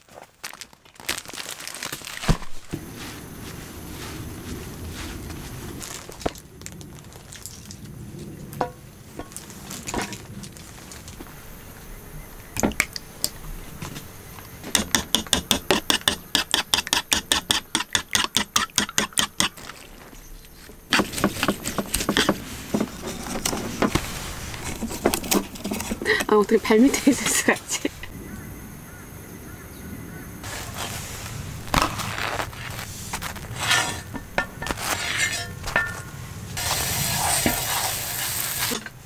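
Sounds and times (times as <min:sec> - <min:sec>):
cooking utensil clicks and knocks: 0:14.7 - 0:19.6
utensil clatter: 0:14.7 - 0:19.9
rapid utensil taps: 0:14.8 - 0:19.6.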